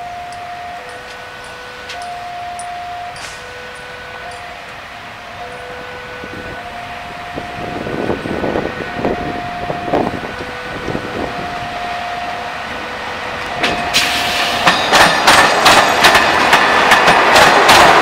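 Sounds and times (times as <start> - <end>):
locomotive engine passing: 0.0 - 18.0
train wheels clacking on rails: 0.3 - 4.8, 13.4 - 18.0.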